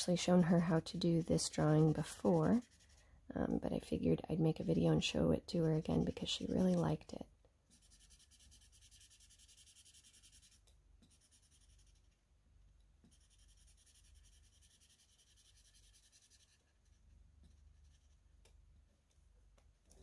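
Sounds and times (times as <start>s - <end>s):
marker scratching on paper: 0.0s - 3.0s, 5.6s - 7.0s, 7.7s - 12.1s, 13.0s - 18.2s.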